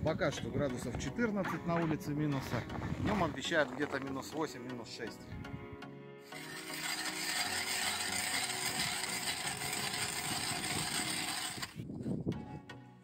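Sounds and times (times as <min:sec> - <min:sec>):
ice auger grinding into ice: 0:06.2 - 0:11.8.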